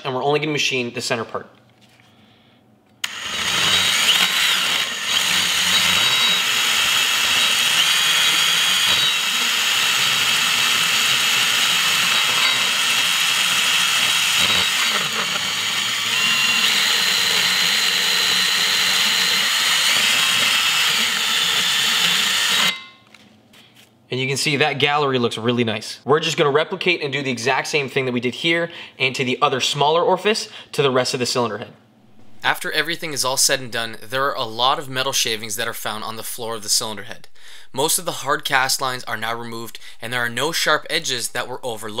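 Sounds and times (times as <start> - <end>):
rotary tool grinding metal: 3.0 - 22.9.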